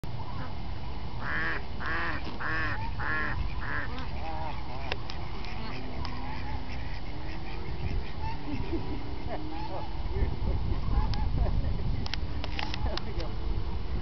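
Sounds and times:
waterfowl calling: 0:01.2 - 0:10.0.

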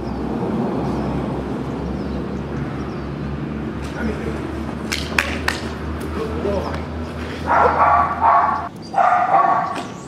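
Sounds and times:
low traffic rumble: 0:00.0 - 0:10.0
sharp hand claps: 0:04.9 - 0:06.1.

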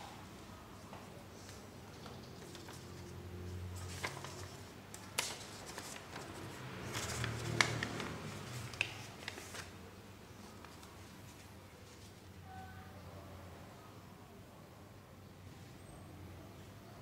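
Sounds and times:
paper crinkling and folding: 0:01.4 - 0:12.2
paper crackling clicks: 0:03.8 - 0:09.8.

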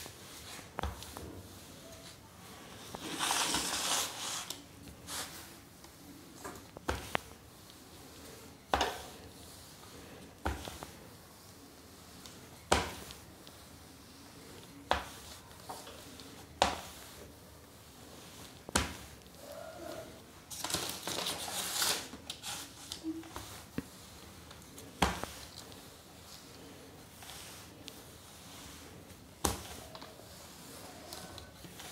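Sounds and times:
paper crinkling: 0:02.9 - 0:05.3, 0:20.5 - 0:23.8.

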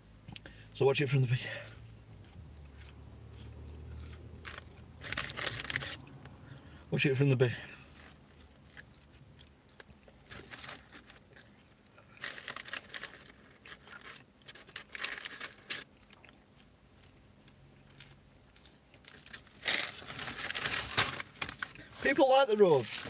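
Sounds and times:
soft chewing: 0:01.6 - 0:06.8, 0:07.8 - 0:12.4, 0:15.8 - 0:19.5
paper bag rustling: 0:04.5 - 0:06.0, 0:19.4 - 0:23.0.

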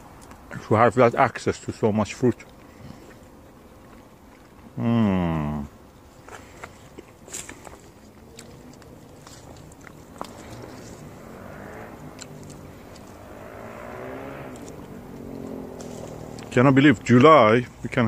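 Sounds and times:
distant vehicle engine hum: 0:00.0 - 0:18.0
branches clicking and rustling: 0:06.1 - 0:18.0.

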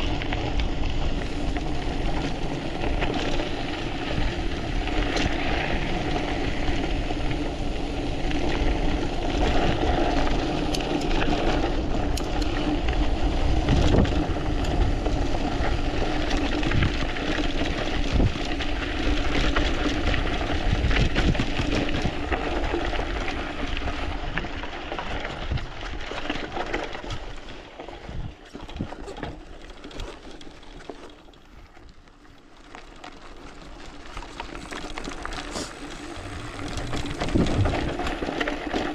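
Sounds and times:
bike clicks and rattles: 0:00.0 - 0:38.9
tyres rolling on dirt: 0:00.0 - 0:38.9
wind rushing over microphone: 0:11.6 - 0:15.9, 0:34.6 - 0:38.9.

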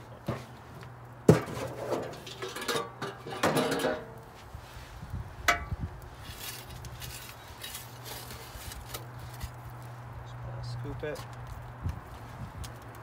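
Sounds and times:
shovel scraping metal firebox: 0:00.0 - 0:09.7.

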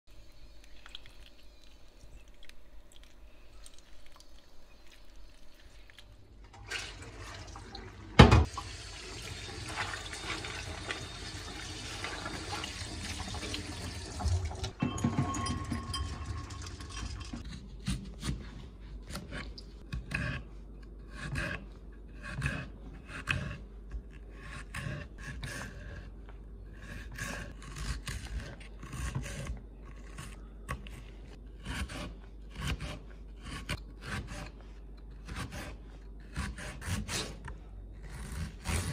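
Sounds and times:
tap water running into sink: 0:06.6 - 0:17.4
metal clank: 0:14.7 - 0:17.4.

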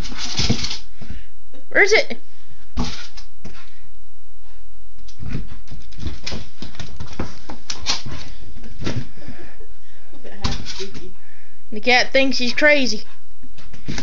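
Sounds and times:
paws thumping: 0:05.1 - 0:09.1.

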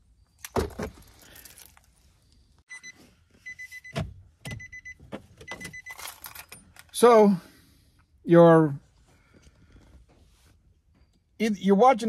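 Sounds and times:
electronic warning chime beeping: 0:02.7 - 0:06.0.

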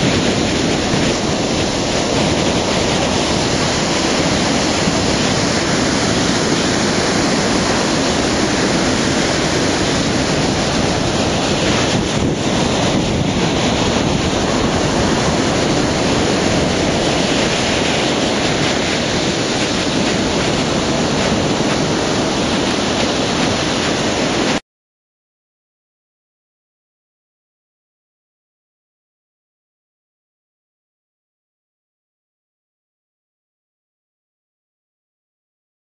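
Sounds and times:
ocean waves breaking: 0:00.0 - 0:24.6.

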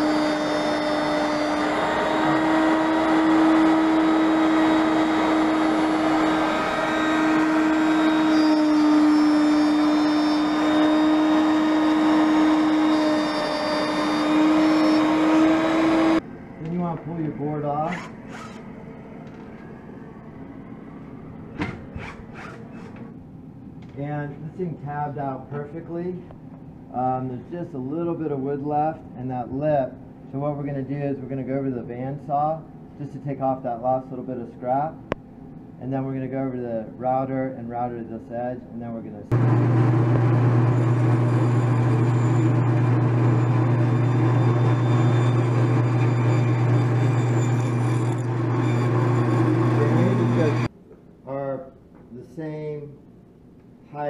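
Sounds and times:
bandsaw cutting wood: 0:00.0 - 0:16.2, 0:17.8 - 0:18.7, 0:21.7 - 0:23.0, 0:39.3 - 0:50.7
woodshop machinery humming: 0:00.0 - 0:23.1, 0:39.3 - 0:50.7.

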